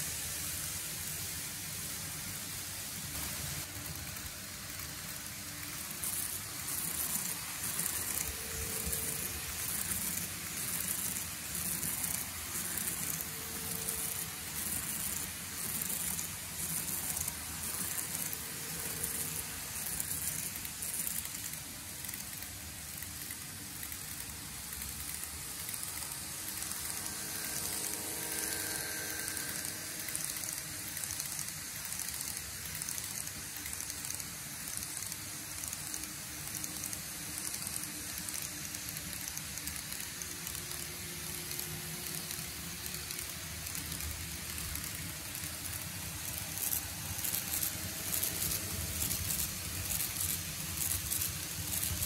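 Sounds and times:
model train wheels rolling: 0:00.0 - 0:52.0
rapid clicks of model train: 0:00.0 - 0:52.0.

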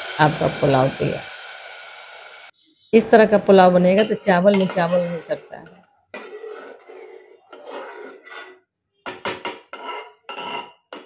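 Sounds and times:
spoon scraping metal pot: 0:03.9 - 0:11.0.

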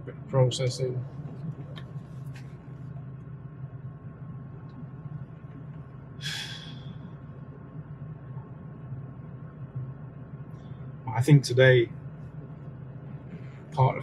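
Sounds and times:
low background hum: 0:00.0 - 0:14.0
man's sharp breath: 0:06.2 - 0:07.1.

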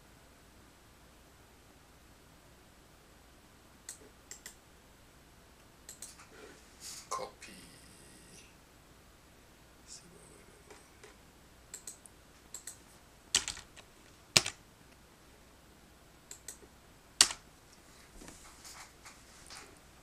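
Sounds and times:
computer keyboard typing: 0:11.0 - 0:14.6, 0:17.2 - 0:17.4.

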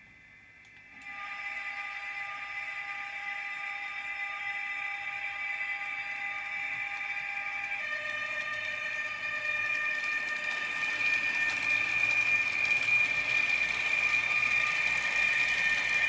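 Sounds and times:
model train electric whine: 0:00.0 - 0:16.0
wheels rattling on rails: 0:05.2 - 0:16.0.

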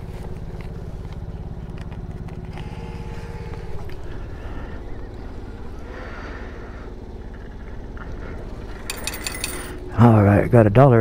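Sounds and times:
engine idling: 0:00.0 - 0:11.0
bill acceptor whirring: 0:02.4 - 0:06.6, 0:08.4 - 0:10.0.

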